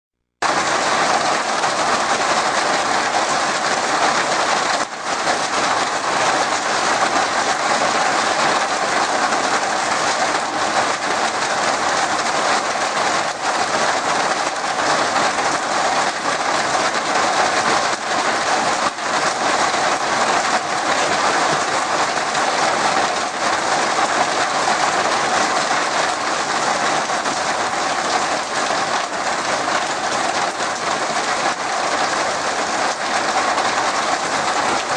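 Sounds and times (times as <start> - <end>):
heavy rain on foliage: 0.4 - 34.9.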